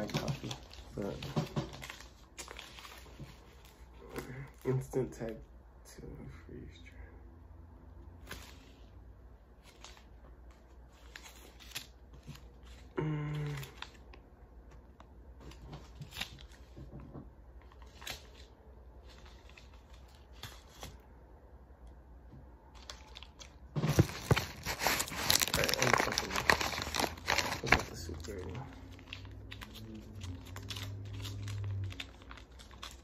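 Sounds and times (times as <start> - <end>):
food packets crinkling: 0.0 - 3.9, 22.7 - 33.0
person humming: 13.0 - 13.8.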